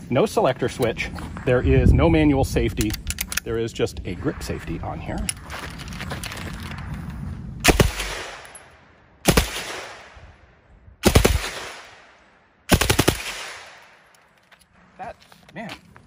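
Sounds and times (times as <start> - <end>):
submachine gun firing bursts: 9.2 - 10.0, 11.0 - 11.9, 12.7 - 13.8.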